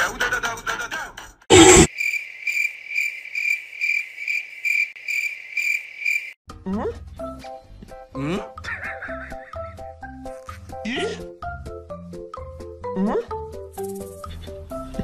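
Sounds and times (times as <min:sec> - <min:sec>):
cricket chirping: 0:01.9 - 0:06.4.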